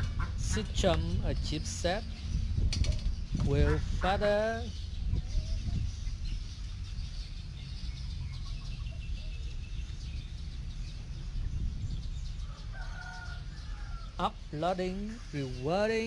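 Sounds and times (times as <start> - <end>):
low rumble: 0.0 - 12.8
drawn-out chicken call: 12.4 - 14.2.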